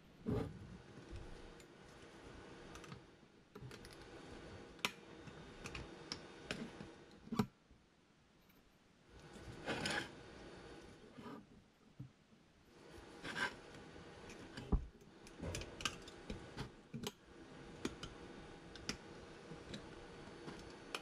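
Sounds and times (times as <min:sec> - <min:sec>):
scraping rub: 0:09.4 - 0:10.2, 0:13.2 - 0:13.7.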